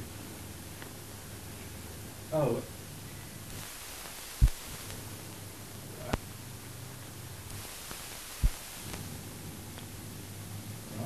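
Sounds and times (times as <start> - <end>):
film soundtrack hum and hiss: 0.0 - 11.0
loud low thumps: 4.4 - 4.8.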